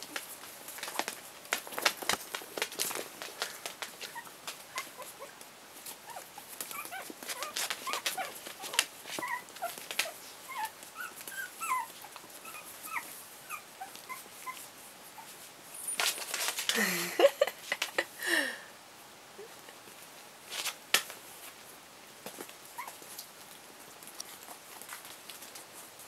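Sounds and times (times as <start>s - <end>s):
puppy scuffle with falling cry: 0.0s - 14.6s
puppies squeaking and yipping: 4.0s - 5.3s, 6.0s - 14.6s.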